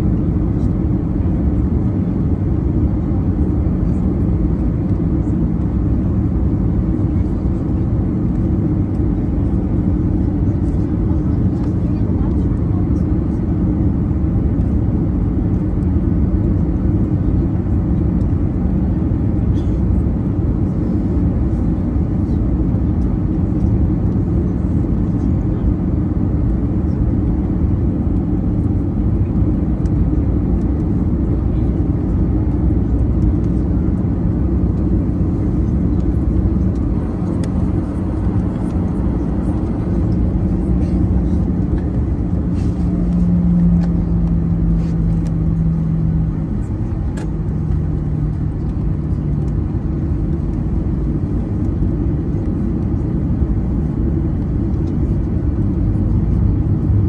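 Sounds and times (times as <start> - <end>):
jet engines rumbling in cabin: 0.0 - 57.0
low cabin hum: 0.0 - 57.0.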